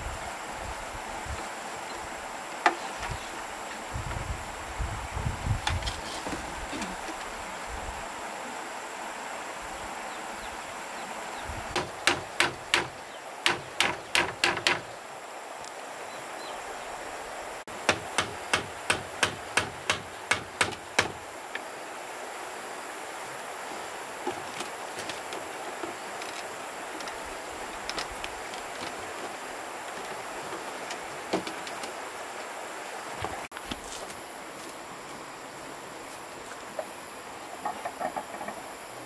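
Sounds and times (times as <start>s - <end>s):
hand tool striking: 17.9s - 21.2s.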